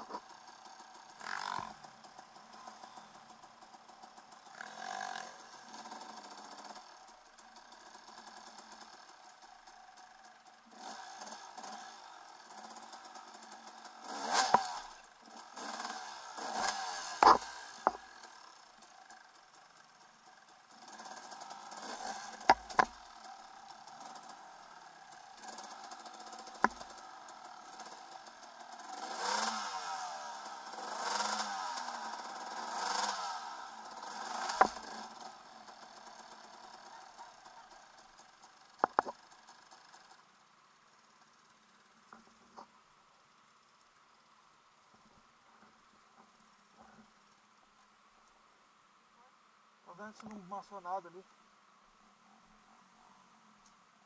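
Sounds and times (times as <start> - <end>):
motorcycle engine revving: 0.0 - 42.7
sharp knocks and clatters: 17.2 - 18.2, 22.4 - 23.0, 38.8 - 39.2.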